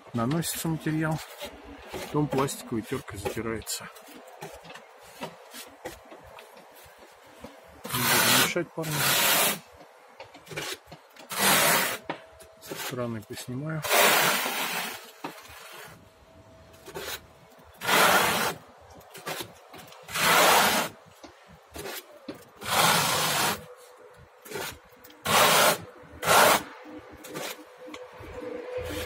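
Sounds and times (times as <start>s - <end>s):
trowel scraping plaster on wall: 0.6s - 6.1s, 7.8s - 9.7s, 10.4s - 13.0s, 13.8s - 16.0s, 16.8s - 21.0s, 21.7s - 23.7s, 24.4s - 27.7s.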